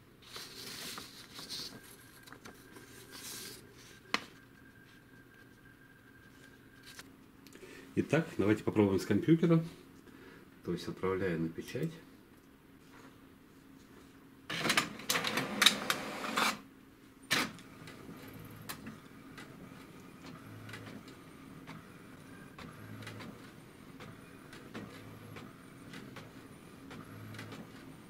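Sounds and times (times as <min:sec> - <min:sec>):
printer motors whirring: 0:14.5 - 0:16.6, 0:17.3 - 0:28.0.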